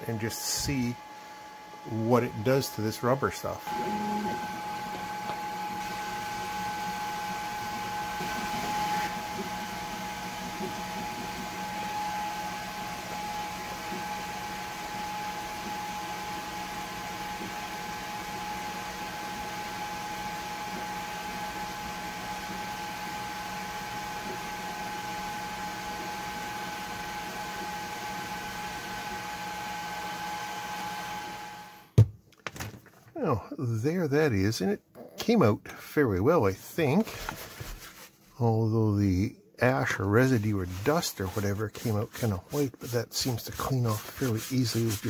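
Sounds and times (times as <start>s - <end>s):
machine hum: 0.0s - 32.0s.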